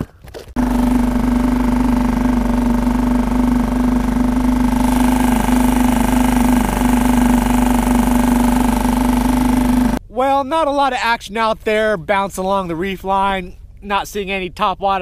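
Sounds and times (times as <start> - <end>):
outboard motor humming: 0.6 - 10.0.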